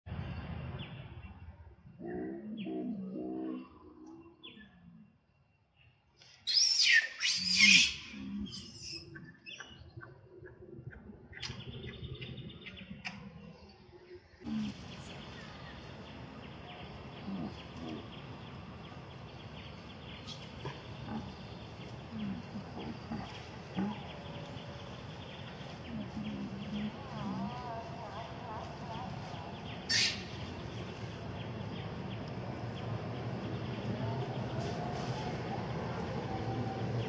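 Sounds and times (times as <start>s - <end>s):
baby monkey screaming: 6.5s - 9.0s, 29.9s - 30.2s
soft low sounds: 7.9s - 37.0s.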